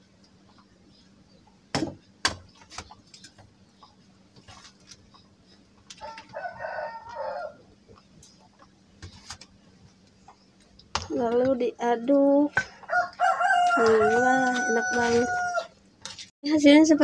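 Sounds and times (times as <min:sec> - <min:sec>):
sharp knocks: 0:01.7 - 0:02.5
rooster crowing: 0:06.0 - 0:07.7, 0:12.8 - 0:15.8.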